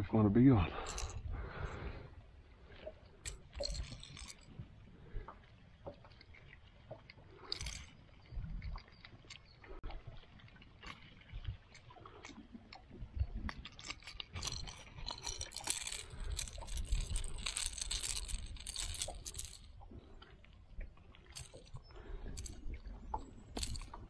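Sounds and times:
pliers and hooks clinking: 0:00.9 - 0:01.2, 0:03.3 - 0:04.4, 0:13.8 - 0:19.7, 0:21.3 - 0:22.6, 0:23.5 - 0:24.0.

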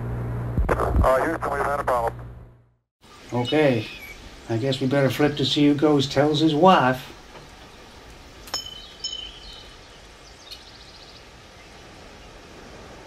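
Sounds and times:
coin ringing ping: 0:08.5 - 0:09.5.

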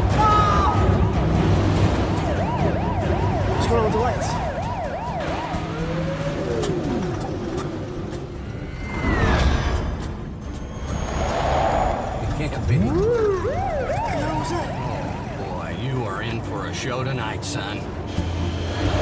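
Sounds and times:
car engines rumbling: 0:00.9 - 0:19.0
slow rising and falling siren: 0:01.4 - 0:09.8, 0:10.8 - 0:16.3
police siren yelping: 0:01.9 - 0:07.4, 0:12.6 - 0:16.4.

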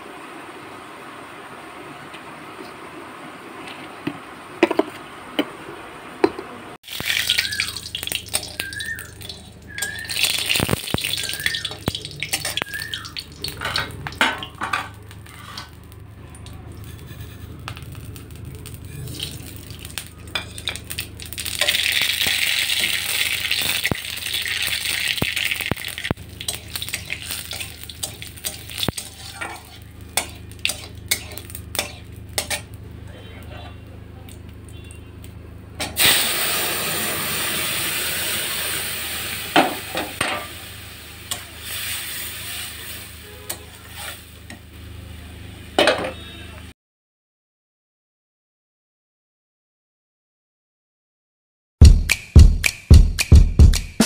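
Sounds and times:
oil sizzling: 0:00.0 - 0:33.0, 0:34.3 - 0:45.8
metal spatula scraping in pan: 0:08.3 - 0:12.8, 0:13.5 - 0:15.8, 0:16.7 - 0:25.0, 0:26.4 - 0:33.8, 0:41.3 - 0:44.4.

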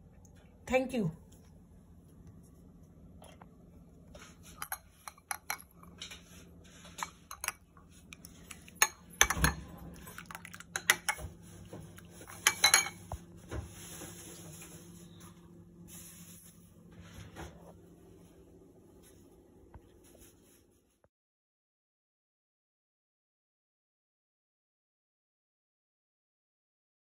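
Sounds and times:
spoon clinking on ceramic bowl: 0:07.0 - 0:07.6, 0:08.7 - 0:09.6, 0:12.3 - 0:13.0.

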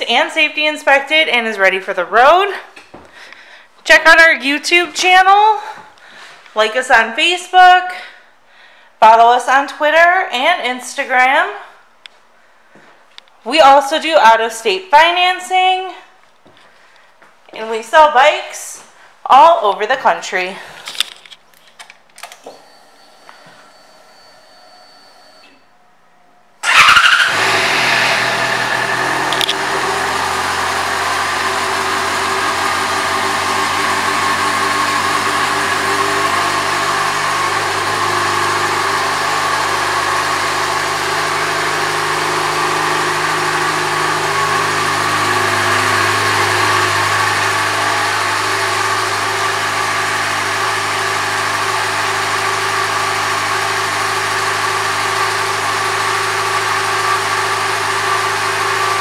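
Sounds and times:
motorcycle engine idling: 0:26.6 - 0:59.0.

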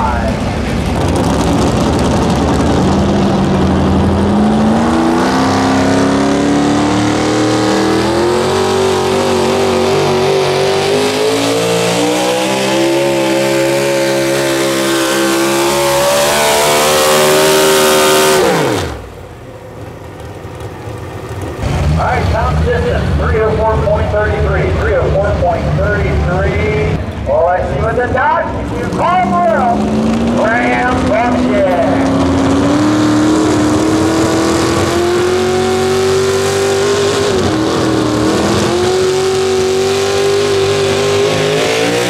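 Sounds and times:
truck engine running hard: 0:00.0 - 0:42.0.

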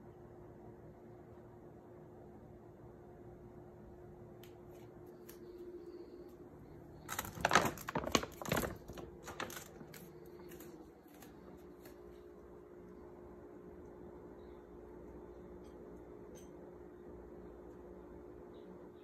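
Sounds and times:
food bag crinkling: 0:07.0 - 0:12.1.

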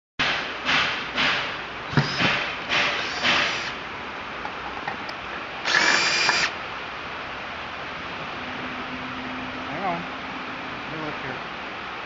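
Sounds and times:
power drill whine: 0:01.9 - 0:02.2, 0:03.0 - 0:03.8, 0:05.6 - 0:06.5.

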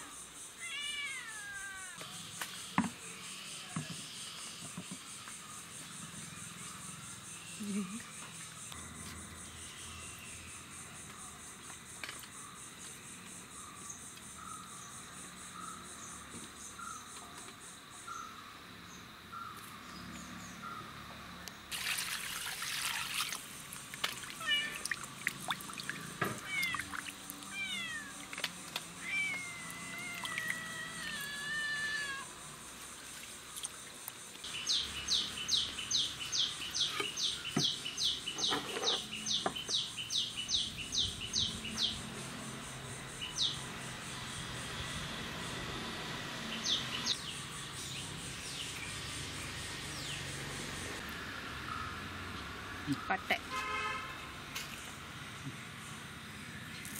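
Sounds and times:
insects: 0:00.0 - 0:56.9
water splashing in a bowl: 0:21.7 - 0:31.3
birds: 0:24.1 - 0:44.3, 0:46.4 - 0:51.0.

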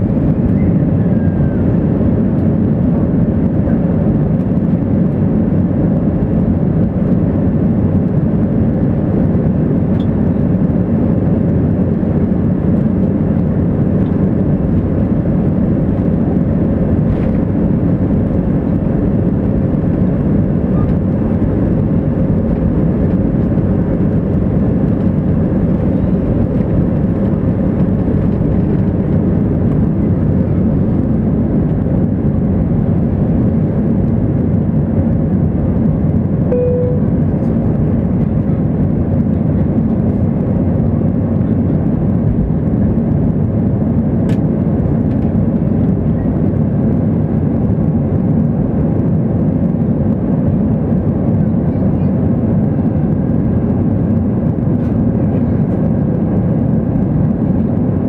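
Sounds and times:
aircraft cabin low rumble: 0:00.0 - 0:58.0
faint steady drone: 0:36.5 - 0:38.0.

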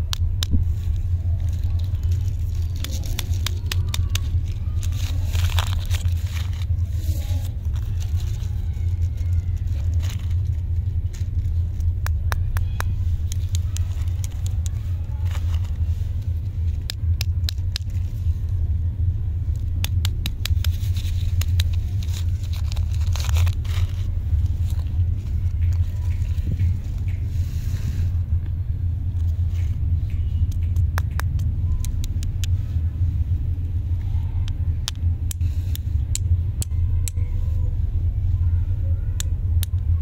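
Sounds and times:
wrappers crinkling and tearing: 0:00.0 - 0:18.6, 0:19.4 - 0:27.2
steady low rumble: 0:00.0 - 0:40.0.

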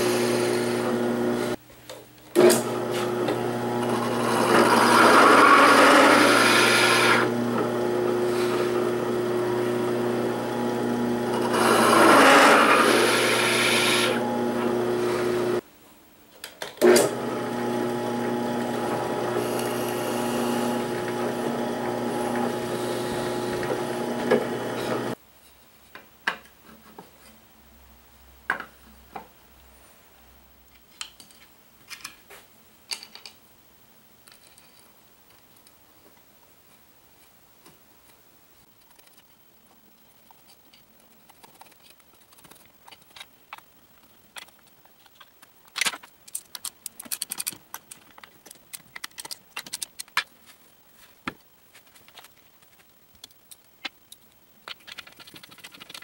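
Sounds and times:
drill press motor humming: 0:00.0 - 0:01.6, 0:02.4 - 0:15.6, 0:16.8 - 0:25.2
drill bit cutting metal plate: 0:03.8 - 0:07.7, 0:11.3 - 0:14.3
clicks of screws and parts handled: 0:44.3 - 0:50.3.

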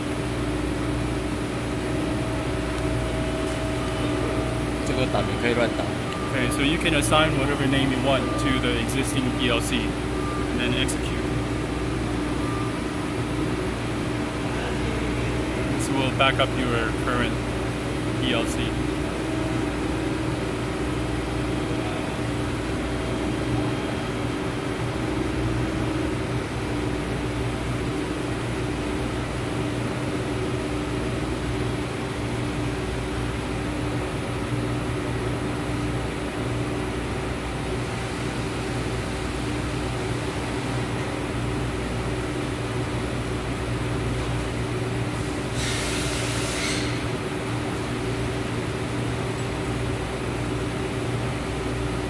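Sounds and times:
machine tool hum: 0:00.0 - 0:12.9.

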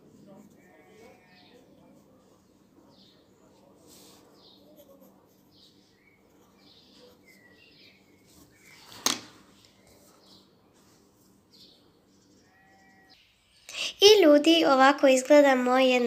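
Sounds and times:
pencil scratching on paper: 0:00.0 - 0:08.8
faint bird chirps: 0:04.2 - 0:09.0.

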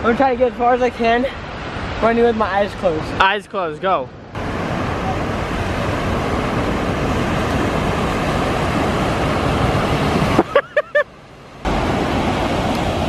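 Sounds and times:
ocean surf breaking: 0:00.0 - 0:13.0
wind buffeting microphone: 0:04.1 - 0:10.5.

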